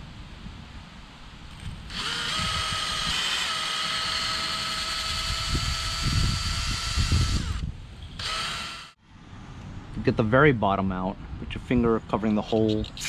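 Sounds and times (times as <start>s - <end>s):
cordless drill whine: 1.9s - 9.0s.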